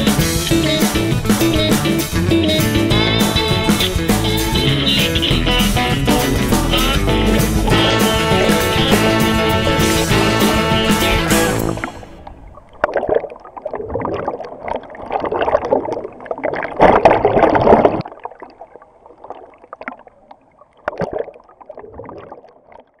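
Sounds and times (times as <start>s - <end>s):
pool water sloshing and splashing: 9.7s - 23.0s.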